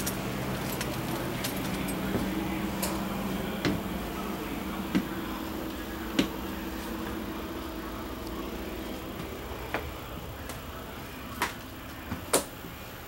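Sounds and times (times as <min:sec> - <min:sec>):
steady low hum: 0:00.0 - 0:13.0
footsteps knocking on steps: 0:03.6 - 0:04.0, 0:04.8 - 0:05.4, 0:06.0 - 0:07.2.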